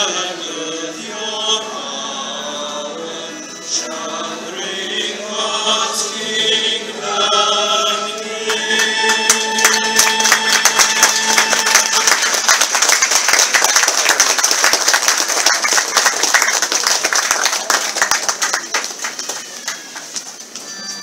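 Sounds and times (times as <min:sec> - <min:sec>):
choir singing: 0:00.0 - 0:12.5
crowd voices: 0:00.0 - 0:21.0
congregation applauding: 0:08.4 - 0:20.5.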